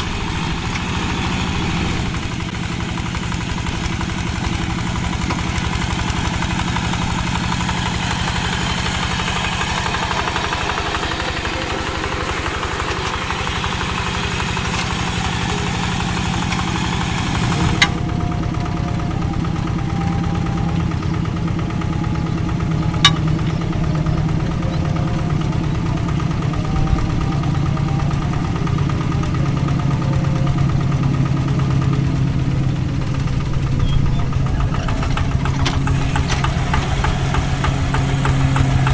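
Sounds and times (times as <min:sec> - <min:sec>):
diesel engine chugging: 0:00.0 - 0:38.9.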